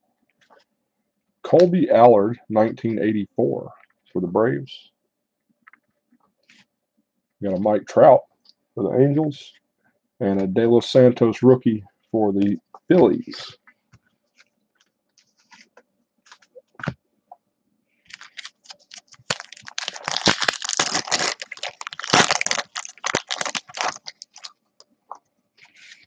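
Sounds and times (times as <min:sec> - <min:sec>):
foil wrapper tearing and crinkling: 0:18.1 - 0:24.6.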